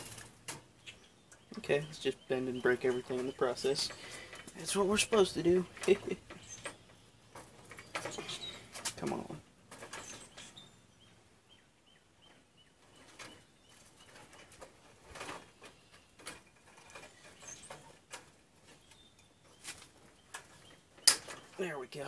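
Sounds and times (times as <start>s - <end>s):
wire cutters clicking on metal: 20.4s - 21.6s.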